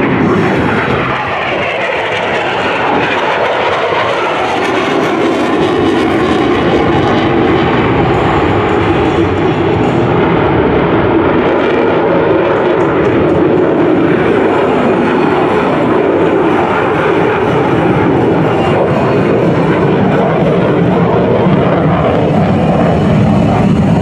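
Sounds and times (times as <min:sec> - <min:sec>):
jet flying overhead: 0:00.0 - 0:24.0.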